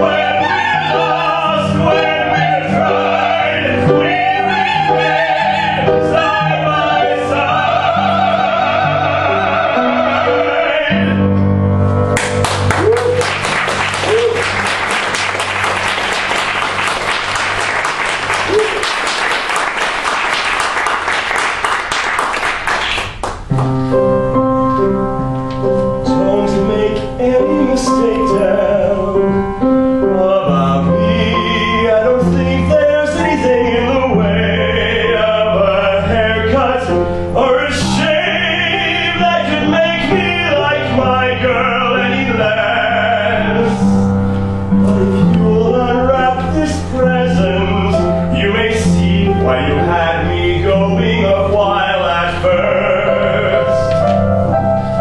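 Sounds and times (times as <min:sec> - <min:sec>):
operatic singing with vibrato: 0:00.0 - 0:11.5, 0:26.0 - 0:44.2, 0:44.8 - 0:54.2
audience applause: 0:12.2 - 0:23.5
instrumental accompaniment chords: 0:23.4 - 0:37.4, 0:38.0 - 0:55.0.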